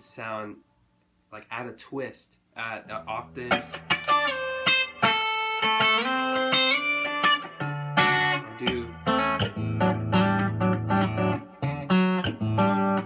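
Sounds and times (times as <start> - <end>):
electric guitar playing: 3.0 - 13.0.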